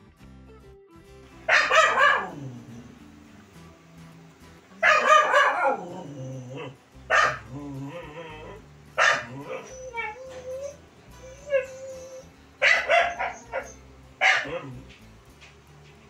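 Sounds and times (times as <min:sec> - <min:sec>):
puppy barking: 0:01.5 - 0:02.9, 0:04.8 - 0:15.1
puppy whining: 0:04.8 - 0:15.1.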